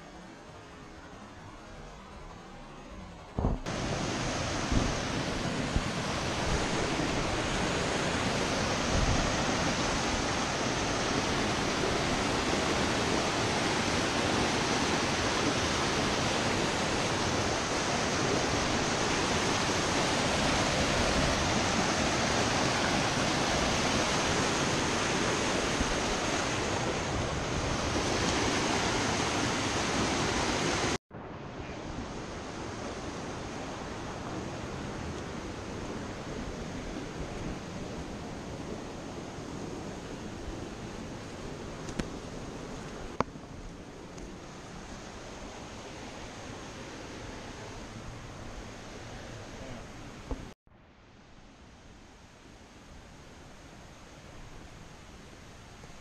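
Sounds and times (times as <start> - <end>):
creek water rushing over rocks: 3.4 - 31.0.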